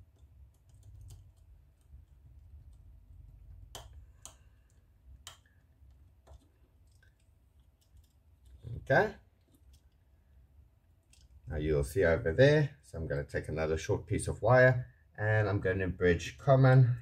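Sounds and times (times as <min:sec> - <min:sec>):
fingers clicking and tapping wires: 0:00.0 - 0:10.1, 0:10.9 - 0:11.5
sharp clicks: 0:02.6 - 0:08.6.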